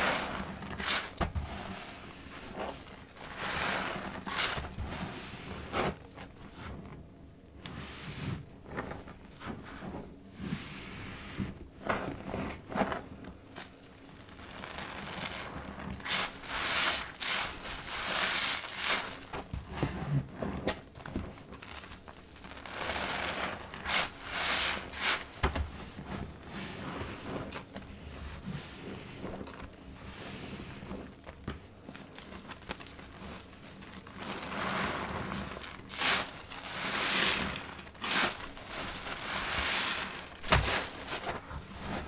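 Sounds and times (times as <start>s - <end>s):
wet sponge squelching: 0.0s - 6.8s, 13.6s - 42.0s
hissing foam: 14.2s - 19.5s, 22.6s - 25.4s.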